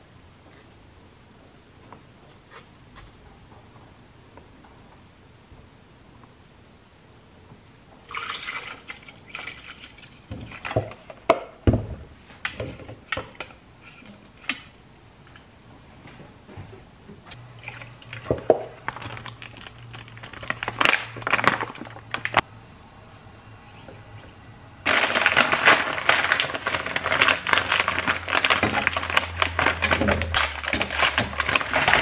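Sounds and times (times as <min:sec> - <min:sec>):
plastic bag rustling: 0:18.8 - 0:22.4, 0:24.9 - 0:32.0
containers knocking and clinking: 0:24.9 - 0:32.0.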